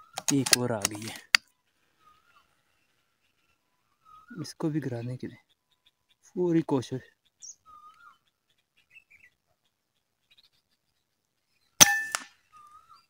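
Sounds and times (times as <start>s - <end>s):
faint bird chirps: 0.0s - 13.0s
air rifle shot: 11.8s - 12.3s.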